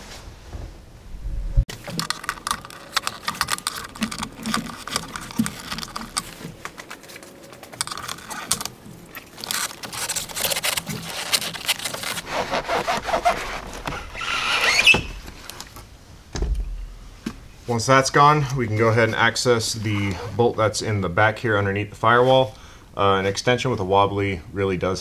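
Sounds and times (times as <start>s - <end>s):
metal shield clicking and scraping: 1.7s - 15.8s
dull thump: 16.3s - 17.4s.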